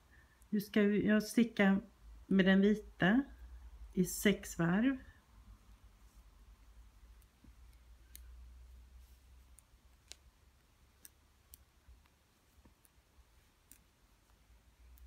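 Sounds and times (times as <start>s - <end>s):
wooden knitting needles clicking: 7.0s - 15.0s.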